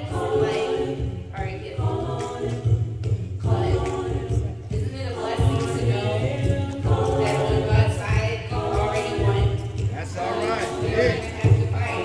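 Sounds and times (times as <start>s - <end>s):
women singing a cappella: 0.0s - 12.0s.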